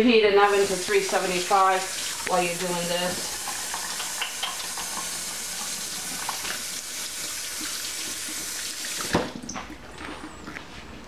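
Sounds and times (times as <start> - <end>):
faucet running into steel sink: 0.4 - 9.5
faucet knock: 3.2 - 5.1.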